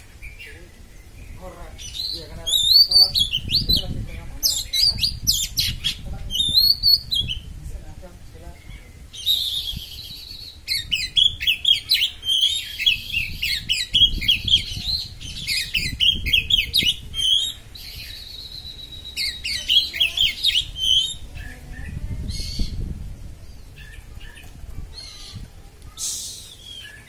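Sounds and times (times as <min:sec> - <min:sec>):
bird chattering song: 0:00.0 - 0:07.6, 0:08.3 - 0:27.0
bird high whistle: 0:09.2 - 0:11.5.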